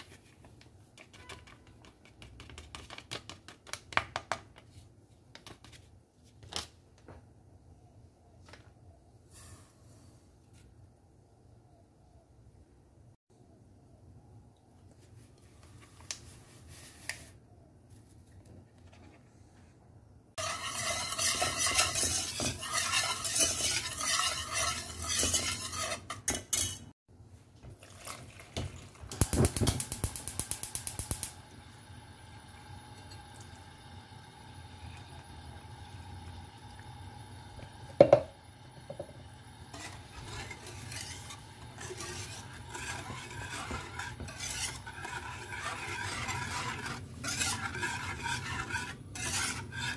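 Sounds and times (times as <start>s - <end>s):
wire whisk stirring: 20.4s - 26.9s, 39.7s - 49.9s
water pouring into saucepan: 27.8s - 29.2s.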